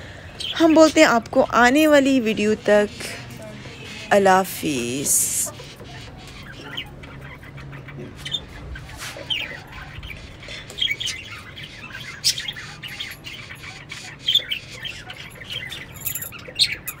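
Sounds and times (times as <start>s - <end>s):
birds chirping and squawking: 0.0s - 17.0s.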